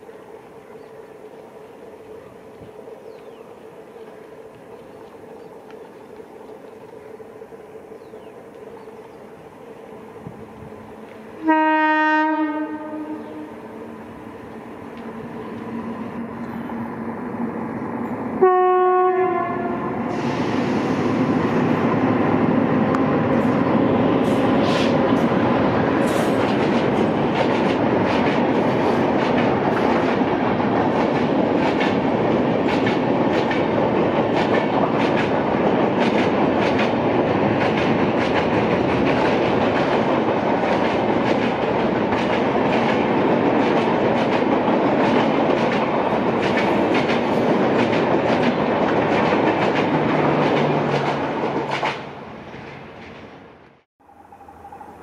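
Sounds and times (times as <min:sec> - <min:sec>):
train wheels clattering over rail joints: 0:24.2 - 0:53.3.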